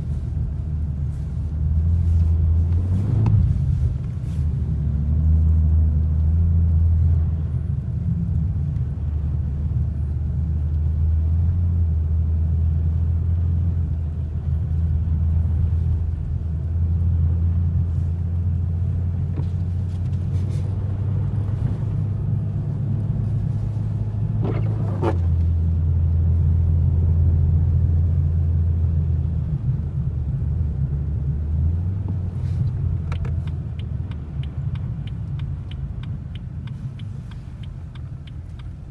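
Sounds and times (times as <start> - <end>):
car engine and tyres droning: 0.0 - 38.9
faint clicks: 32.6 - 38.9.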